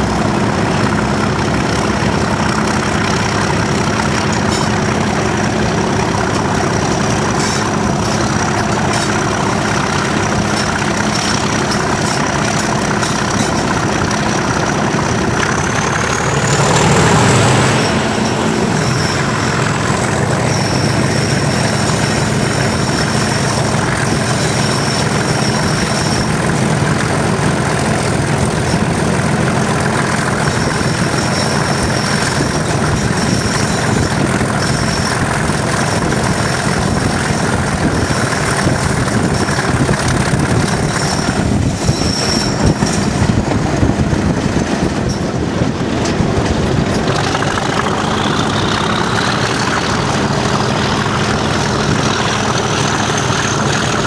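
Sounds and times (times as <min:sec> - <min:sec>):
diesel locomotive engine running: 0:00.0 - 0:54.0
turbocharger whistle: 0:15.4 - 0:23.6.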